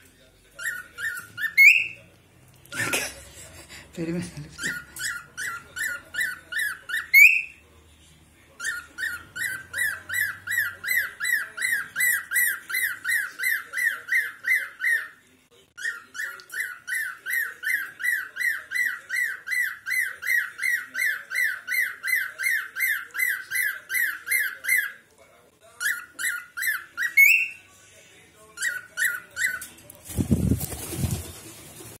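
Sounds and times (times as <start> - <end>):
cockatiel chirping: 0.6 - 2.0, 4.6 - 7.6, 8.6 - 15.2, 15.8 - 25.0, 25.8 - 27.6, 28.6 - 29.7.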